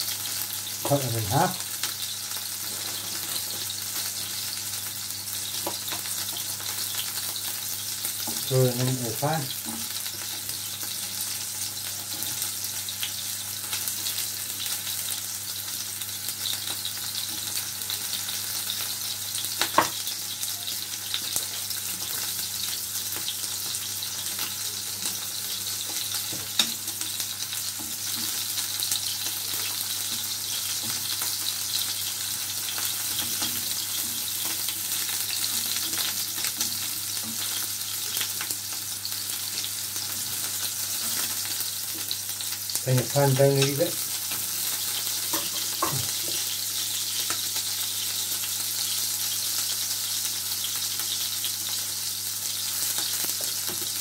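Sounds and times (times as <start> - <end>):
fish sizzling in frying pan: 0.0 - 54.0.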